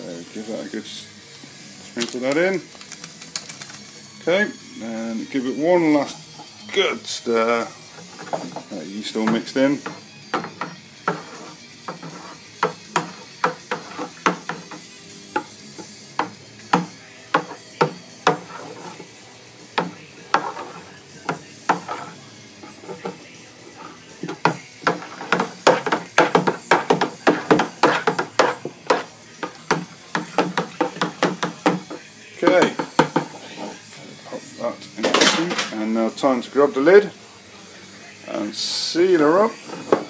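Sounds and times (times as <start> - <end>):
spoon stirring liquid: 10.6 - 14.8, 18.2 - 19.1, 19.8 - 34.5
spoon knocking plastic barrel: 11.9 - 14.8, 24.2 - 33.4.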